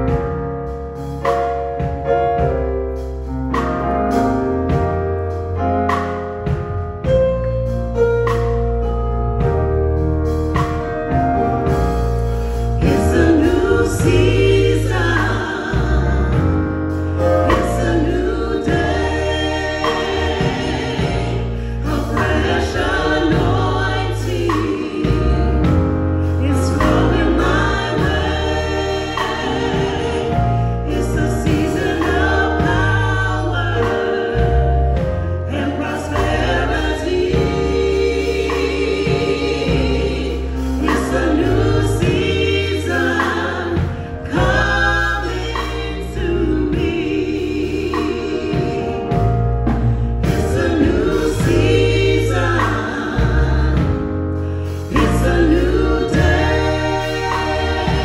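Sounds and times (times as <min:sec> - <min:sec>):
gospel choir singing: 0:00.0 - 0:58.0
held bass notes: 0:00.0 - 0:58.0
instrumental accompaniment: 0:00.0 - 0:58.0.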